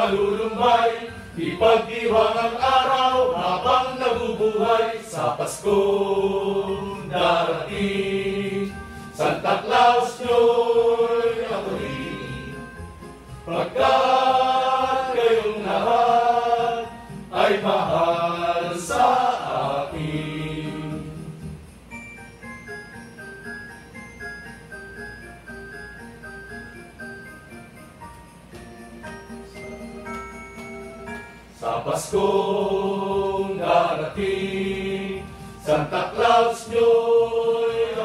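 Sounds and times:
men singing in chorus: 0.0 - 12.6, 13.5 - 21.2, 31.6 - 38.0.

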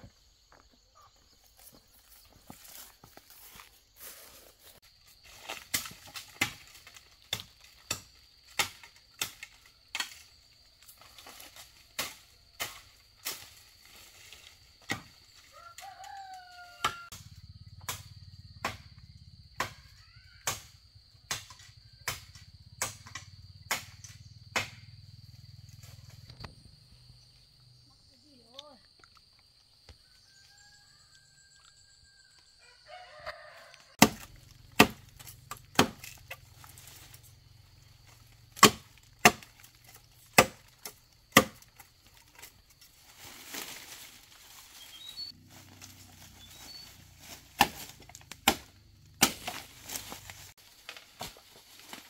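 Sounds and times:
hand tool striking wood: 34.0 - 36.4, 38.6 - 41.8, 47.2 - 50.1.

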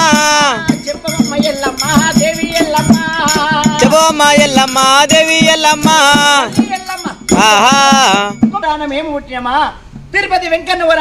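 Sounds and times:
jingling rattle: 0.0 - 8.6
steady drum beat: 0.0 - 8.8.

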